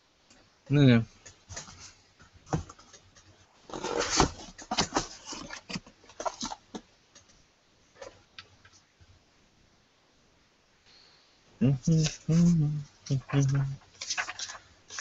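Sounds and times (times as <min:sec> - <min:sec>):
cables rustling: 0:11.9 - 0:15.0.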